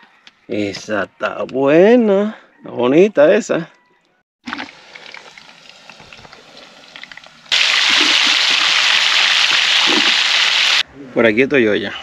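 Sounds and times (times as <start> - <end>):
food sizzling in hot oil: 4.5 - 10.8.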